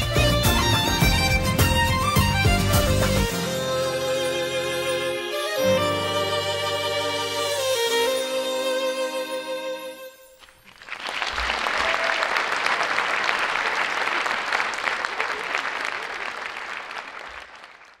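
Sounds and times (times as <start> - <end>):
audience applauding: 10.4 - 18.0.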